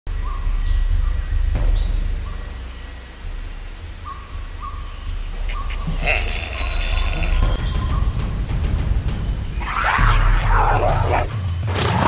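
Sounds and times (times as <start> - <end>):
high-pitched insect-like whine: 0.2 - 11.7.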